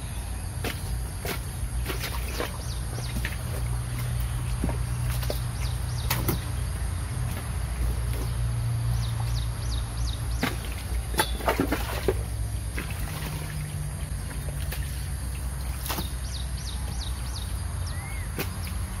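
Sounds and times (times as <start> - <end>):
birds chirping: 0.0 - 19.0
hoe digging wet mud: 0.0 - 19.0
low steady hum: 0.0 - 19.0.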